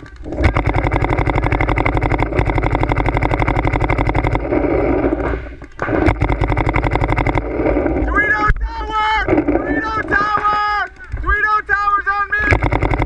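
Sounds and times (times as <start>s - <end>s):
paintball marker rapid firing: 0.0s - 7.8s, 9.4s - 11.4s, 12.4s - 13.0s.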